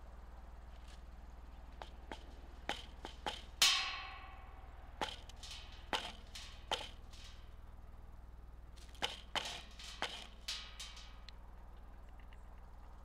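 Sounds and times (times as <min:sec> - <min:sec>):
woodpecker bill knocking on wood: 0:01.6 - 0:04.4, 0:05.0 - 0:07.2.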